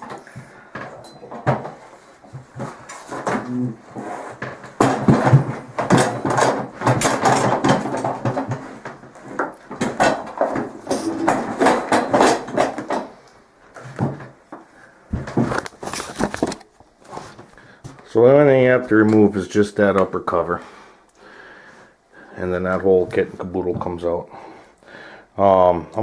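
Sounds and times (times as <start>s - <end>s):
metal knocks and clunks: 4.5s - 13.2s.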